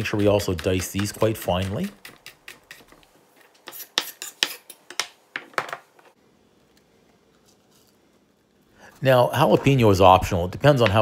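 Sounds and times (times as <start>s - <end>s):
knife chopping on wooden board: 0.0s - 3.0s.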